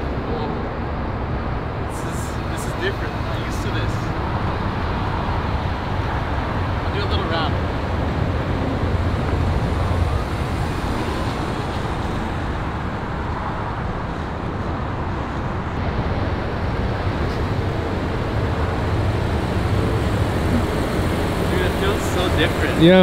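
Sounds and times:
traffic rumble with hiss: 0.0s - 23.0s.

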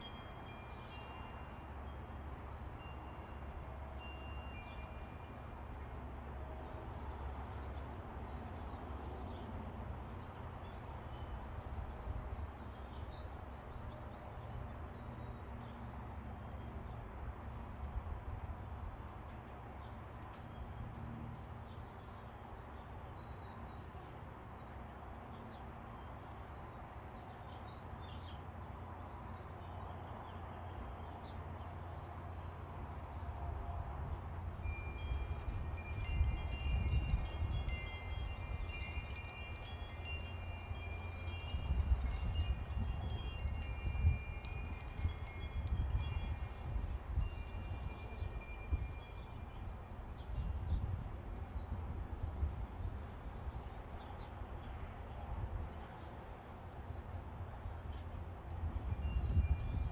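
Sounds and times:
metal wind chimes ringing: 0.0s - 8.1s, 34.5s - 50.5s, 57.9s - 59.9s.

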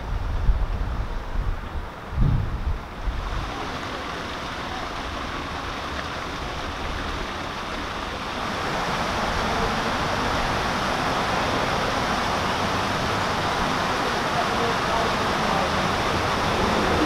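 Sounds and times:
wind buffeting microphone: 0.0s - 3.8s, 15.9s - 17.0s
steady rushing noise: 0.0s - 17.0s.

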